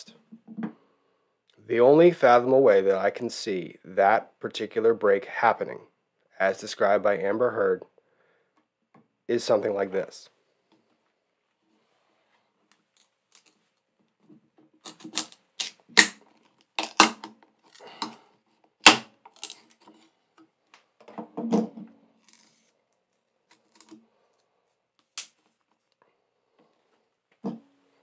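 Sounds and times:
wood splitting with sharp cracks: 14.8s - 18.2s, 18.8s - 19.9s.

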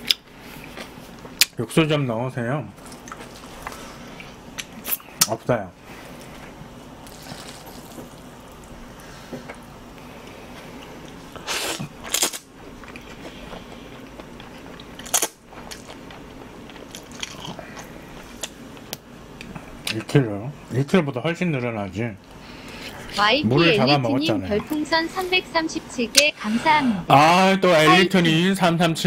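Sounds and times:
chewing noodles: 7.0s - 8.6s, 10.8s - 18.6s.

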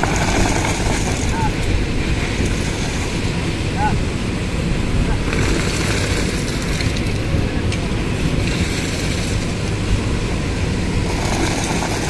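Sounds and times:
machinery engine droning: 0.0s - 12.0s.

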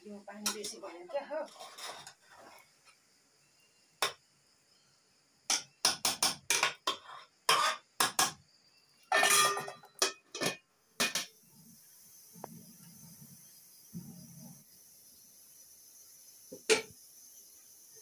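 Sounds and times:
metal spoon scraping metal pot: 1.4s - 2.6s, 6.6s - 7.9s.

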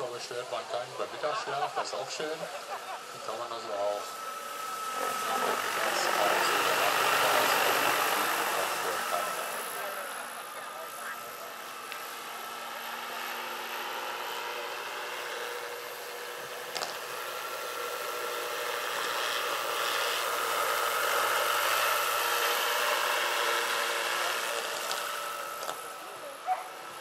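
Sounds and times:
electric drive whine: 0.0s - 27.0s
helicopter rotor noise: 0.0s - 27.0s.

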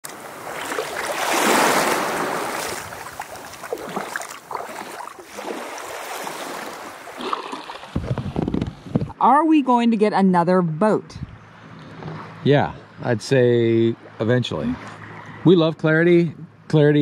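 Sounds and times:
small waves washing on shore: 0.0s - 8.8s.

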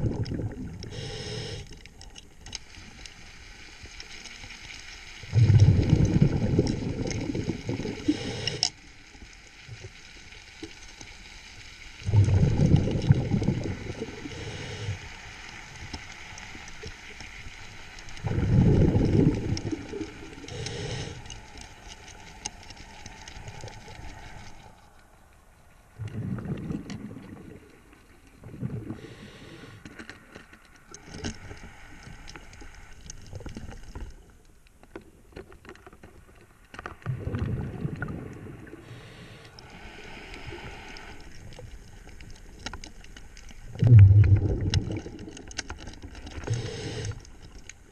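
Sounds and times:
underwater exhaled air bubbling: 0.0s - 2.0s, 5.2s - 8.7s, 12.0s - 15.8s, 18.1s - 21.8s, 25.9s - 29.9s, 36.9s - 47.9s.

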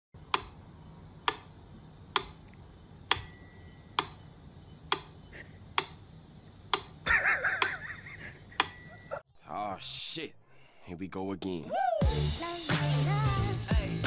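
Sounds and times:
metronome bell ding: 3.1s - 4.7s, 8.6s - 9.2s.

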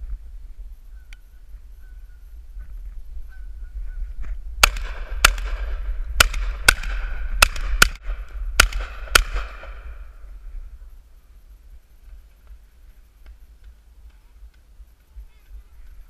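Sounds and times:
shotgun shots: 4.6s - 10.2s.

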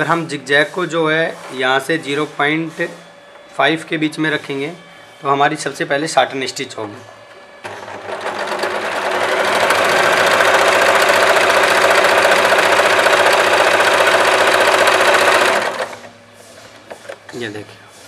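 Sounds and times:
electric sewing machine running: 7.3s - 16.1s.

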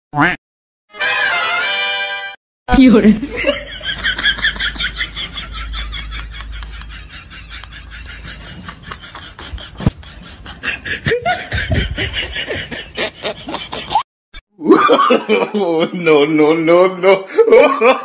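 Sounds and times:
person snickering laughter: 3.4s - 14.0s, 14.6s - 15.8s.

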